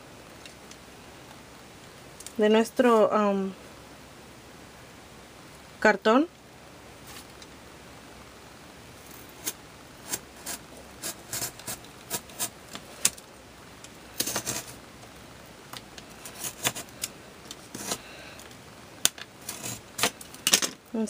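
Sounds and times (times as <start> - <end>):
knife scraping cardboard: 9.4 - 12.6, 14.2 - 14.8, 16.2 - 17.0, 17.7 - 18.0, 19.4 - 20.1.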